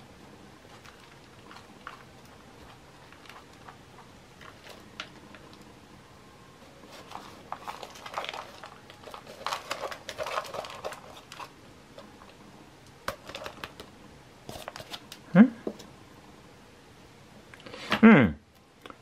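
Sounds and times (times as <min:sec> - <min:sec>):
plastic pot crackling: 0:00.6 - 0:05.6, 0:06.8 - 0:12.4.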